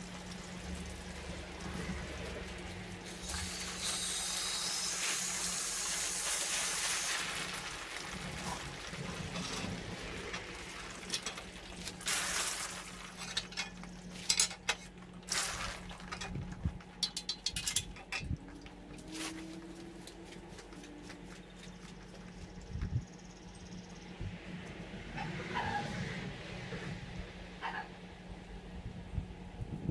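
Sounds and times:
hose spraying water on metal: 0.0s - 18.2s.

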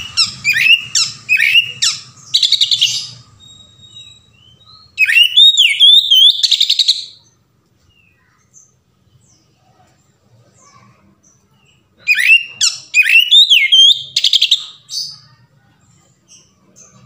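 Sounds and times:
bird singing whistled notes: 0.0s - 7.2s, 12.0s - 14.8s.

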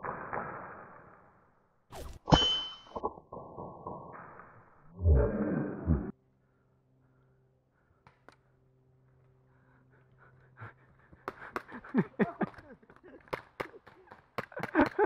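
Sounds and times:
person panting and gasping: 9.6s - 12.2s.

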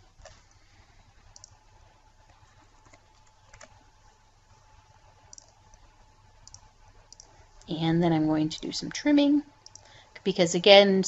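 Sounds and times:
low steady hum: 0.0s - 11.0s
computer mouse clicking: 0.2s - 0.6s, 1.3s - 1.6s, 2.2s - 3.8s, 5.2s - 7.7s, 9.6s - 9.9s.

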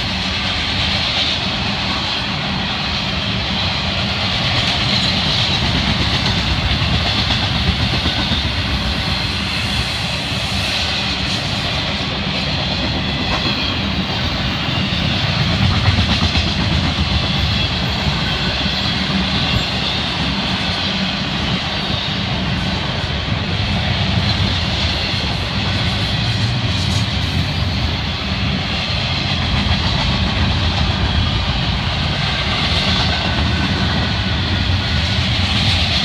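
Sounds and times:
freight train wheels rumbling and clacking: 0.0s - 36.0s.

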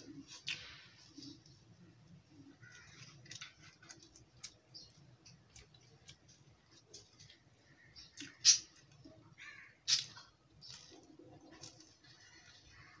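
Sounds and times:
chewing fried food: 2.5s - 9.0s.

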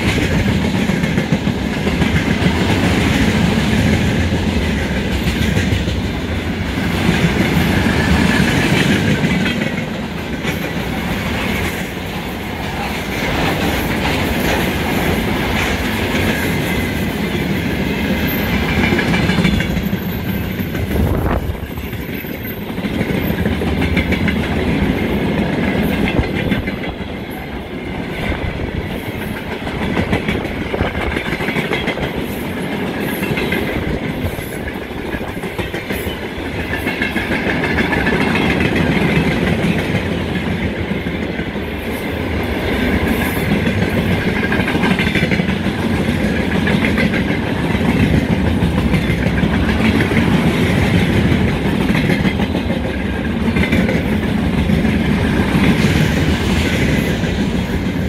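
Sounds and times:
wheels clicking over rail joints: 0.0s - 41.6s
train wheels rumbling on rails: 0.0s - 58.0s.

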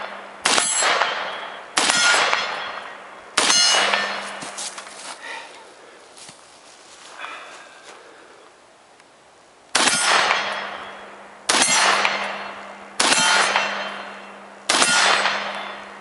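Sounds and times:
rifle shots: 0.0s - 4.3s, 9.7s - 16.0s
steel target ringing: 0.0s - 4.5s, 9.8s - 16.0s.

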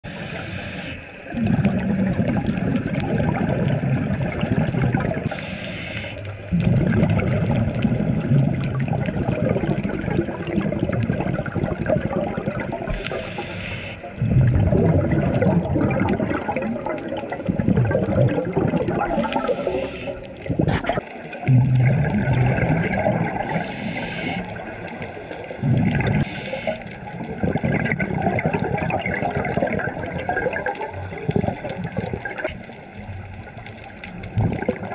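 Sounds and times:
exhaled bubbles rumbling underwater: 0.0s - 34.9s
regulator inhalation hiss: 0.1s - 1.2s, 5.3s - 6.4s, 12.9s - 14.2s, 19.1s - 20.2s, 23.4s - 25.6s, 26.2s - 27.0s.

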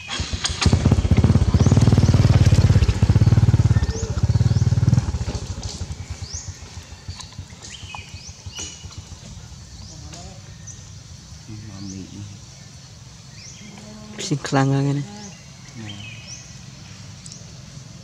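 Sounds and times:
small motorcycle engine running: 0.1s - 11.1s.

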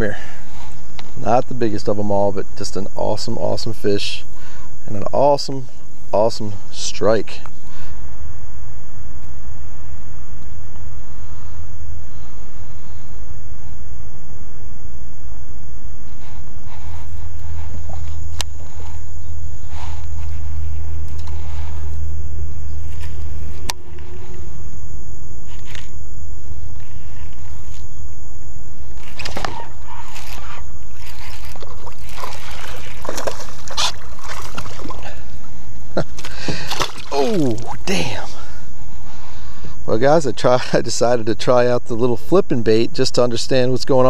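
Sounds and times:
water sloshing around boat: 29.0s - 38.3s
fish thrashing and splashing: 31.0s - 35.3s, 36.0s - 38.1s.

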